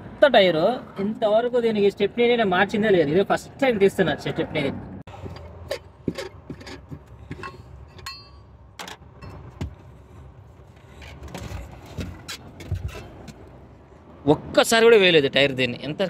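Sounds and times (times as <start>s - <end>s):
spare wheel handling clicks and knocks: 5.1s - 9.9s.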